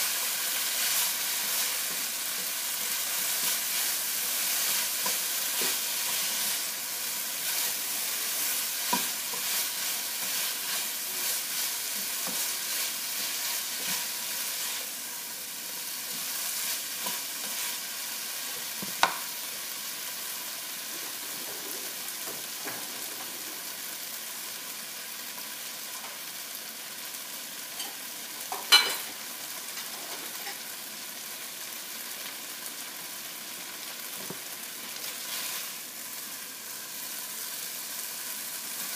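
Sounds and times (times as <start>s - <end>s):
spatula scraping a pan: 0.0s - 17.9s, 35.0s - 35.8s
food sizzling in a frying pan: 0.0s - 38.9s.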